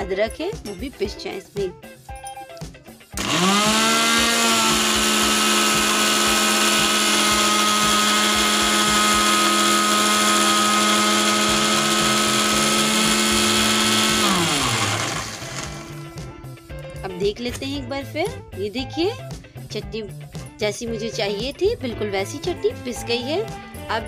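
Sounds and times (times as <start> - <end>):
mixer grinder motor whine: 3.2 - 16.4.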